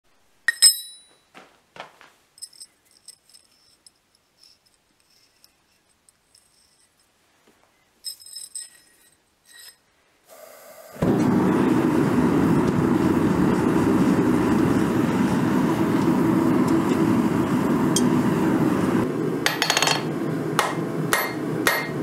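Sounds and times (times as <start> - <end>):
steel bar clanking on anvil: 0.5 - 1.1
metal clinks: 0.5 - 1.3, 2.4 - 7.1, 8.0 - 9.8
soft metal scrapes: 2.9 - 7.1, 8.2 - 9.9.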